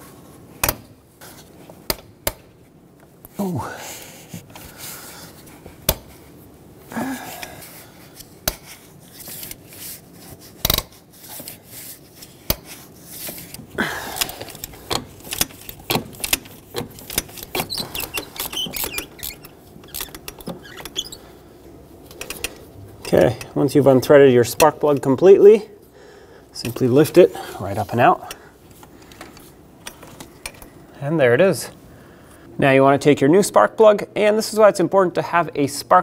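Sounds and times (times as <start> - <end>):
ratchet clicking: 14.2 - 21.2.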